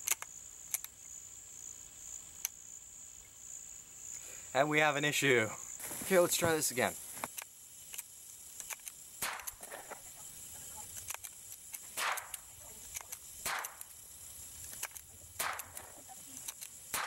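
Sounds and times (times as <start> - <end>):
rifle shots cracking: 9.2 - 9.7, 11.9 - 12.5, 13.4 - 13.9, 14.8 - 16.0.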